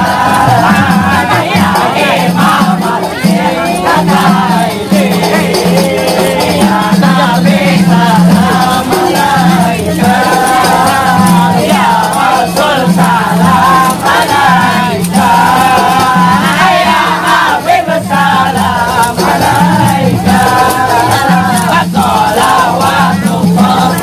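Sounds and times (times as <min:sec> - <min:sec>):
frame drums beating: 0:00.0 - 0:24.0
men singing together: 0:00.0 - 0:24.0.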